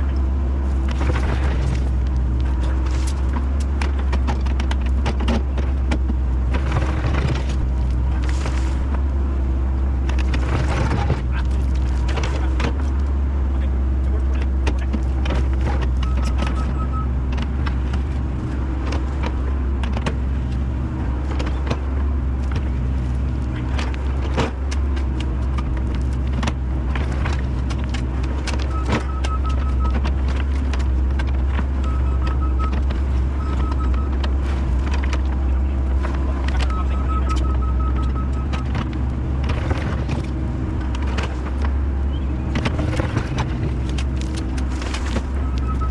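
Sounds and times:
diesel engine running: 0.0 - 45.9
high beeps: 16.0 - 17.1, 28.7 - 30.0, 31.8 - 32.8, 33.4 - 34.2, 36.6 - 38.7, 45.4 - 45.9.

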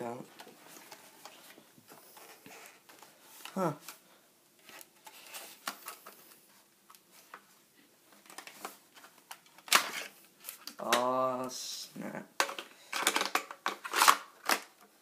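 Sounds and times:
person humming or grunting: 11.0 - 12.3.

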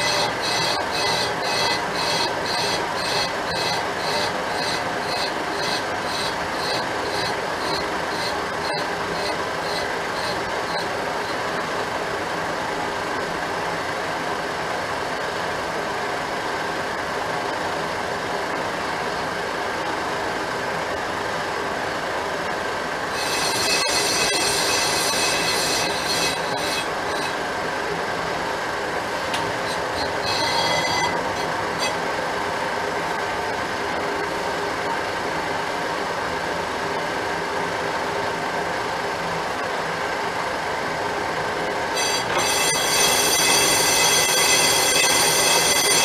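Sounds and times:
high-pitched squeal: 0.0 - 11.5, 23.1 - 27.5, 29.3 - 32.2, 41.9 - 46.0
metal lathe cutting: 0.0 - 12.6, 23.0 - 35.0, 41.8 - 46.0.

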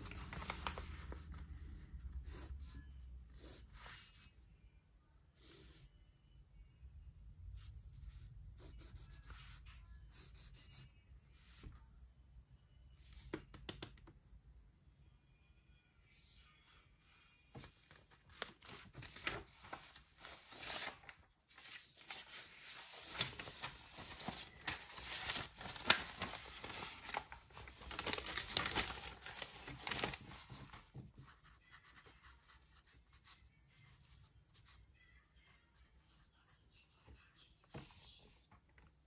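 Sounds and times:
paper rustling and crinkling: 0.0 - 2.6, 17.5 - 32.2.

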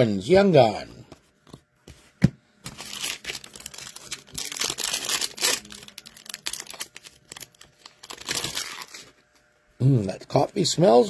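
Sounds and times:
foil wrapper crinkling and tearing: 2.6 - 9.2.

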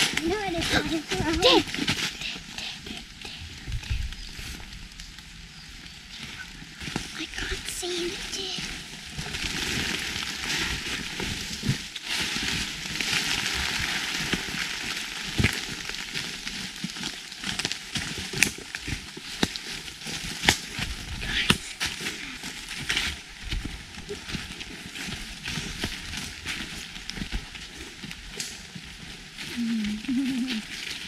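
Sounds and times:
footsteps crunching through leaves: 6.6 - 31.0.

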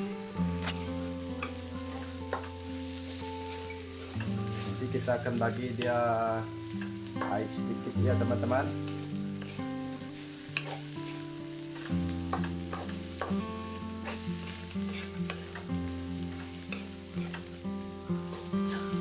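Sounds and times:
spatula scraping a wok: 0.0 - 6.1, 8.4 - 17.6, 18.2 - 19.0
background music: 0.0 - 19.0
food sizzling: 0.0 - 19.0.

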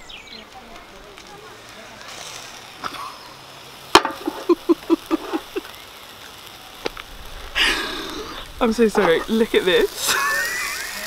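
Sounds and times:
bursts of laughter: 2.8 - 3.5, 4.2 - 5.8, 9.1 - 11.0
frying pan clacking on hot plate: 3.9 - 4.4.

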